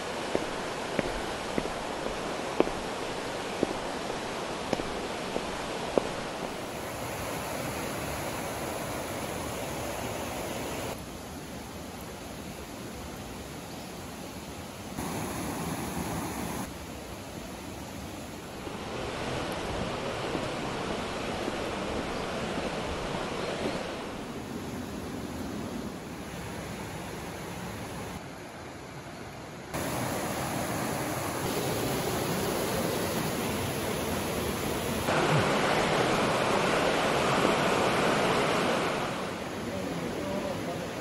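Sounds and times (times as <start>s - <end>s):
river rushing over rocks: 0.0s - 11.1s, 15.0s - 16.8s, 29.8s - 41.0s.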